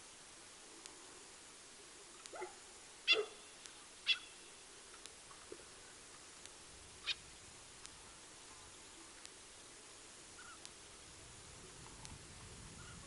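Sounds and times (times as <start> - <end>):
short animal calls: 3.1 - 4.5, 10.4 - 10.6.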